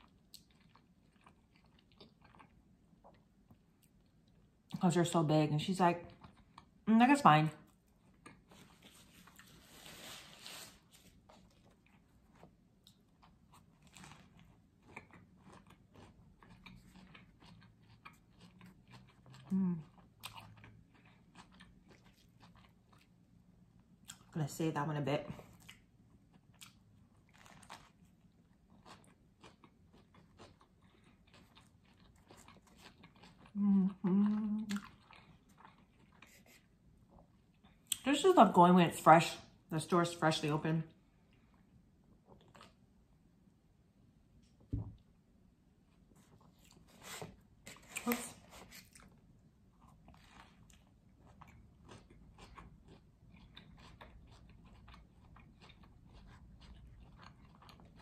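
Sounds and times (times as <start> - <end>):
chewing sandwich: 0.0 - 4.8, 6.0 - 6.8, 7.6 - 24.4, 25.3 - 38.0, 41.2 - 43.1, 45.9 - 58.0
closed-mouth hum of enjoyment: 33.5 - 34.8.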